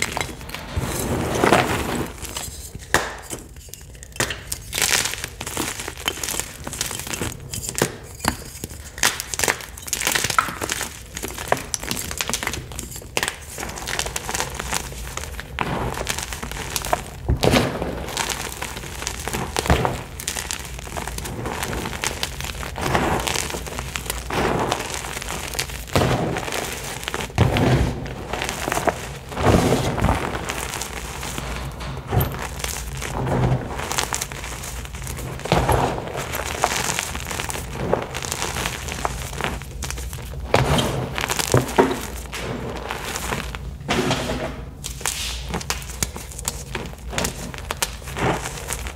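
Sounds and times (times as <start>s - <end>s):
heavy deep crunches: 0.0s - 2.5s, 13.6s - 48.9s
hands crushing chalk: 0.0s - 43.6s, 44.8s - 48.9s.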